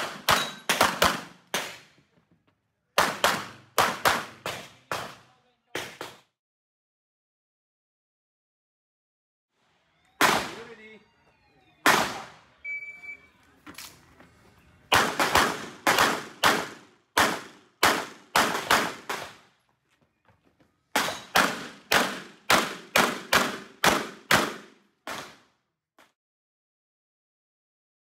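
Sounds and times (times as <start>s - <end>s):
rapid handgun shots: 0.0s - 1.9s, 3.0s - 6.2s, 10.2s - 10.9s, 11.8s - 12.4s, 14.9s - 19.5s, 20.9s - 25.5s
shot timer beep: 12.6s - 13.4s.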